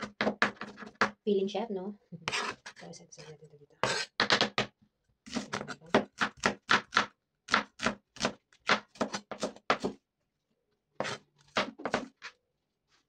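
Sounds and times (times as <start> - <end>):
cleaver chopping on cutting board: 3.8 - 4.7, 5.3 - 10.0, 11.0 - 12.1.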